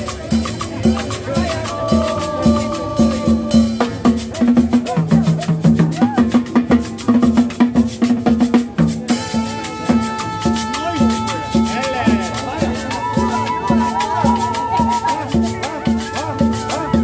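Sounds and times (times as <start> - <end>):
live band playing dance music: 0.0 - 17.0
held brass notes: 9.1 - 17.0.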